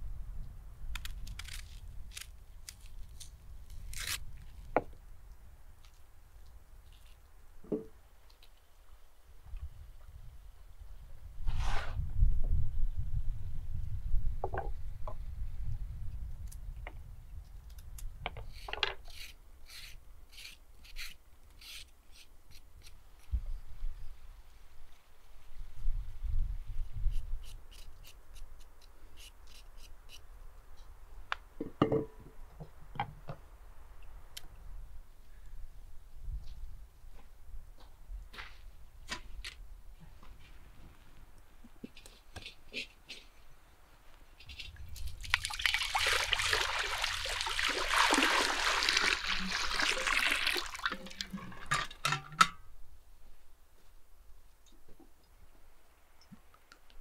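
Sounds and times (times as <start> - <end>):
peeler scraping a carrot: 18.5 - 23.0
water pouring into metal cauldron: 45.3 - 52.0.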